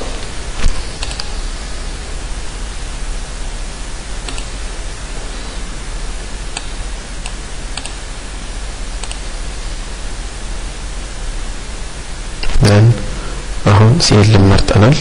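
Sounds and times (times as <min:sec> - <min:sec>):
microphone hiss: 0:00.0 - 0:15.0
computer mouse clicks: 0:00.6 - 0:01.4, 0:04.2 - 0:04.6, 0:06.5 - 0:08.0, 0:09.0 - 0:09.3.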